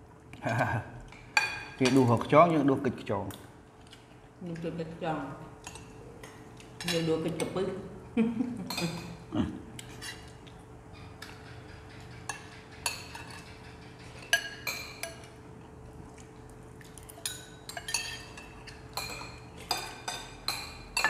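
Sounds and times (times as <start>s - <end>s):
faint steady hum: 0.0s - 21.0s
spoons clinking on ceramic bowls: 12.0s - 15.4s, 17.2s - 21.0s.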